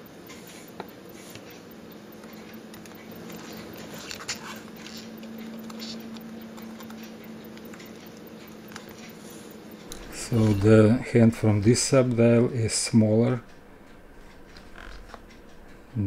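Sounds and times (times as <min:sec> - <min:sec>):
low hum: 0:09.6 - 0:16.0.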